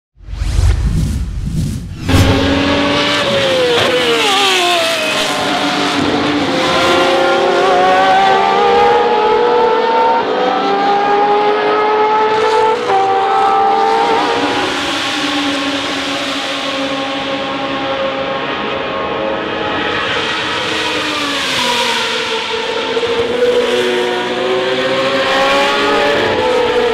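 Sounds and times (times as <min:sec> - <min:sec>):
short whoosh: 0:00.2 - 0:03.0
race car engine: 0:02.0 - 0:26.9.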